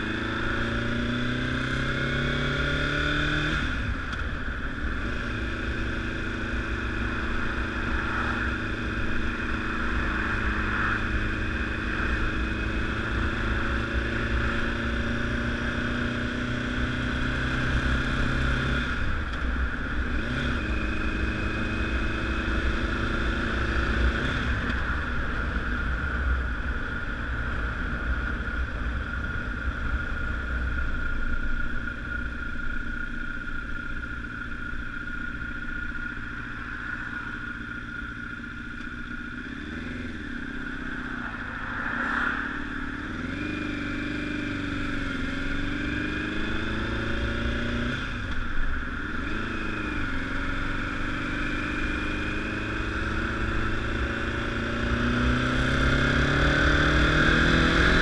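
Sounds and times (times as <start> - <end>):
motorcycle engine revving: 0.0 - 58.0
steady low rumble: 3.7 - 15.3, 24.5 - 51.0.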